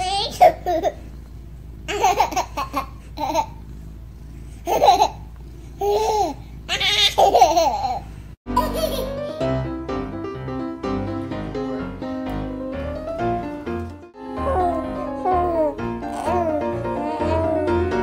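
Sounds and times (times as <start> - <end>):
baby laughing: 1.9 - 3.6, 4.7 - 9.3, 14.4 - 18.0
piano music: 8.5 - 18.0.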